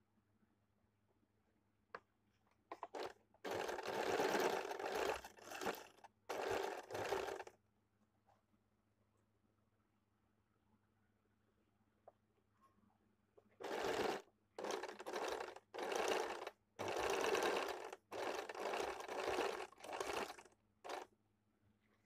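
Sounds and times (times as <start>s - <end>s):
sewing machine stitching: 2.7s - 7.5s, 13.6s - 21.1s.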